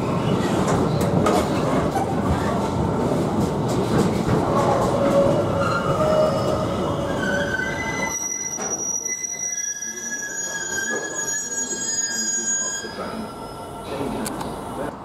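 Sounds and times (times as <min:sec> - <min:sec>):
train wheels squealing: 0:05.0 - 0:14.1.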